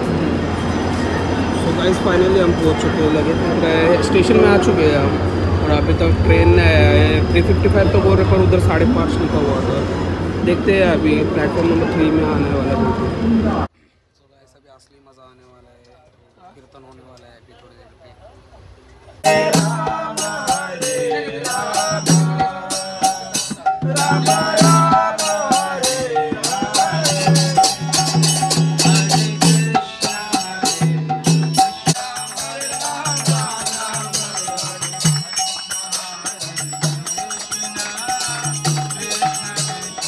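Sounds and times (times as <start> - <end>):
brass hand cymbals: 19.2 - 40.0
hand drum beat: 19.2 - 40.0
men singing: 19.2 - 40.0
harmonium: 19.3 - 40.0.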